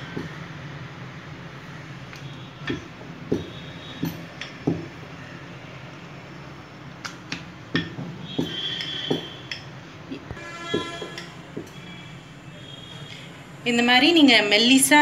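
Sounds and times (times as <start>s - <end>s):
rolling pin rolling dough: 7.1s - 11.8s.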